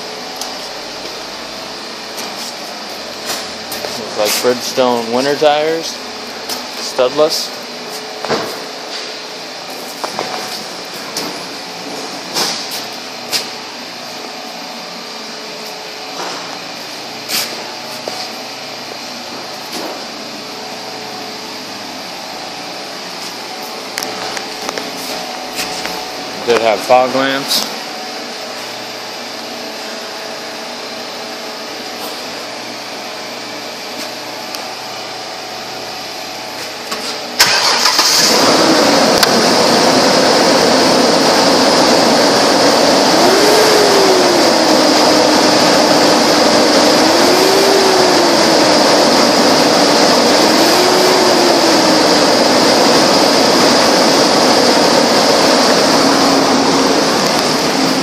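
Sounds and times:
car engine starting and running: 36.9 - 58.0
engine revving: 37.4 - 58.0.

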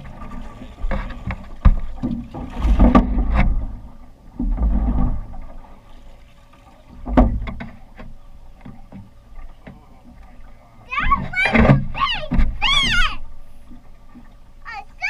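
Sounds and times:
knocks and thumps in metal boat: 0.0 - 5.5, 6.9 - 9.8, 10.9 - 13.2.

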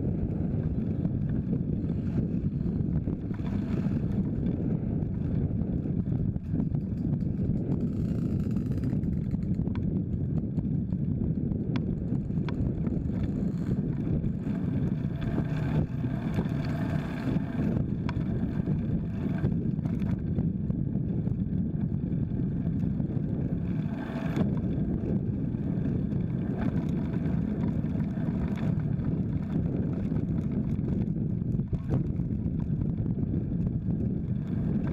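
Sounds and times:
bicycle road rumble: 0.0 - 34.9
wind noise on microphone: 0.0 - 34.9
motorcycles passing: 13.0 - 20.4, 22.7 - 31.1.

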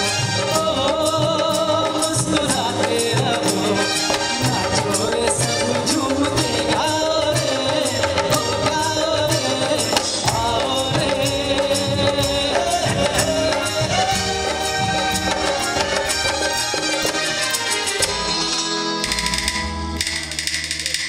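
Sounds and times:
man singing: 0.0 - 16.4
hand percussion beat: 0.0 - 21.0
live band playing: 0.0 - 21.0
wavering melody line: 10.3 - 20.5.

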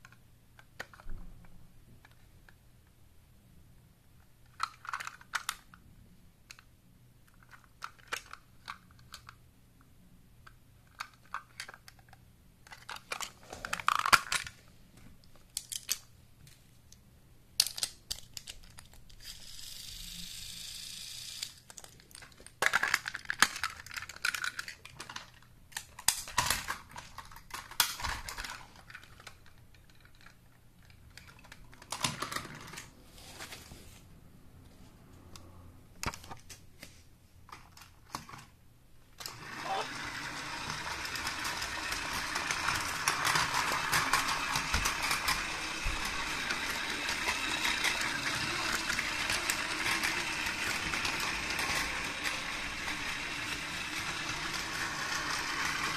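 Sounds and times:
plastic toy train clicks and rattles: 0.0 - 1.1, 4.4 - 5.8, 7.3 - 9.4, 10.4 - 14.6, 15.5 - 16.1, 17.6 - 32.9, 39.2 - 55.9.

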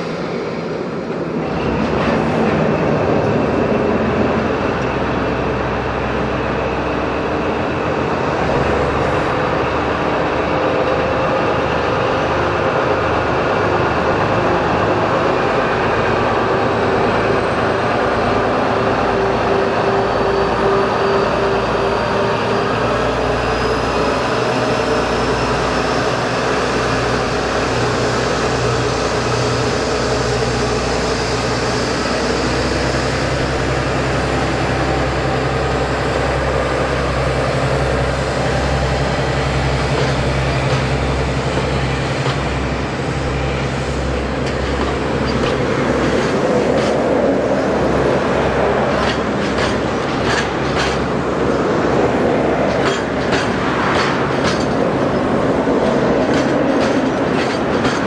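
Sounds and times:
diesel locomotive engine drone: 0.0 - 58.0.

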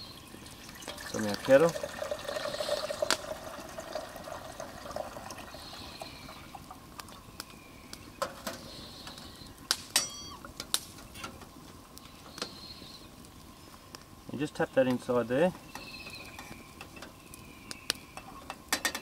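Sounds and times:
water pouring into metal pot: 0.0 - 6.8
metal clinks: 10.0 - 10.4.

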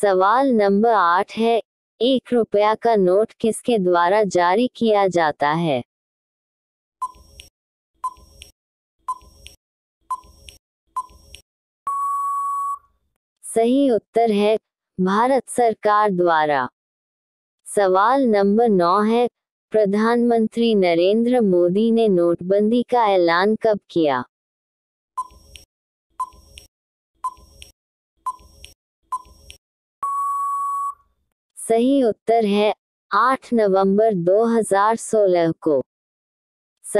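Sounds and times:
electronic timer ticks: 7.0 - 11.4, 25.2 - 29.6
short countdown beeps: 11.9 - 12.8, 30.0 - 31.0
long steady beep: 11.9 - 12.9, 30.0 - 31.0.

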